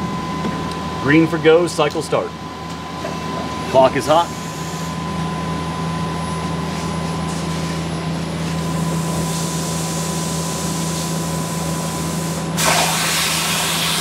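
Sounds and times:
lathe machine hum with high tone: 0:00.0 - 0:14.0
coolant spraying hiss: 0:11.8 - 0:14.0.

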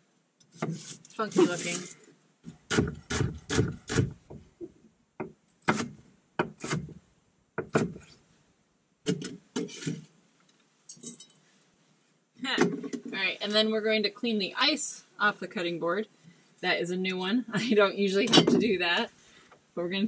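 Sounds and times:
knife chopping on wooden board: 0:02.7 - 0:04.2, 0:05.2 - 0:07.0, 0:07.6 - 0:08.1.

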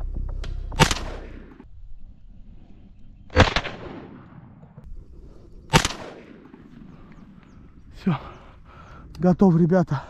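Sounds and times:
shotgun shots with echo: 0:00.8 - 0:01.6, 0:03.3 - 0:04.5, 0:05.7 - 0:06.7.

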